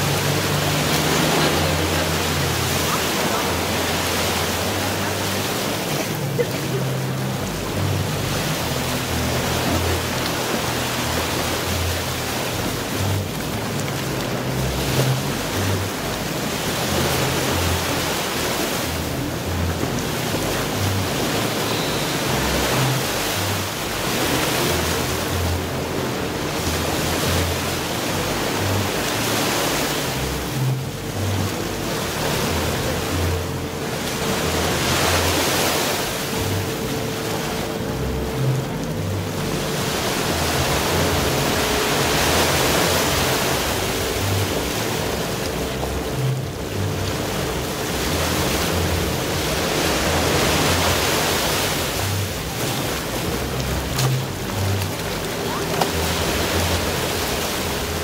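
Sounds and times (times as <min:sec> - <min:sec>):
music with low bass line: 0:00.0 - 0:58.0
sea surf washing onto beach: 0:00.0 - 0:58.0.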